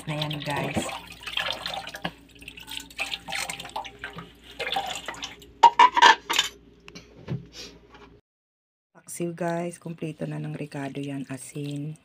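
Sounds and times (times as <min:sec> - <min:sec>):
water splashing and sloshing: 0:00.0 - 0:06.4, 0:09.5 - 0:12.0.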